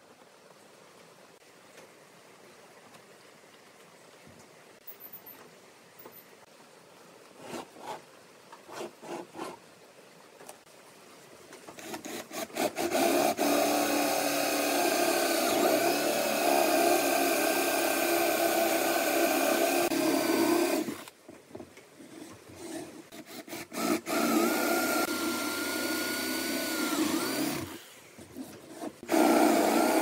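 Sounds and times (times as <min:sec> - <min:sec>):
cordless drill boring into wood: 0:11.8 - 0:21.1, 0:22.6 - 0:27.9, 0:28.7 - 0:30.0.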